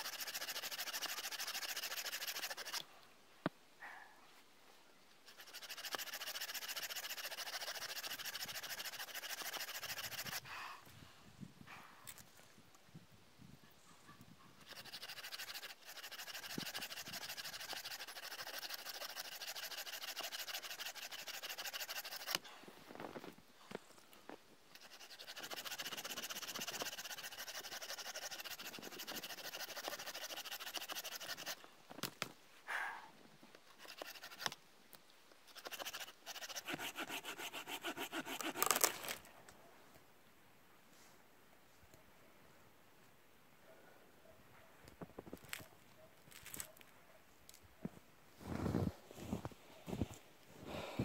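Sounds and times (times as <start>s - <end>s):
saw cutting through branch: 0.0s - 2.8s, 5.3s - 10.4s, 14.6s - 22.4s, 24.8s - 31.6s, 35.6s - 39.3s.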